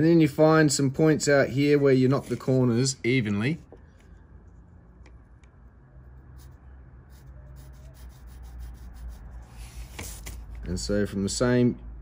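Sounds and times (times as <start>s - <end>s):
low steady hum: 0.0s - 12.0s
pencil scratching on paper: 6.2s - 10.4s.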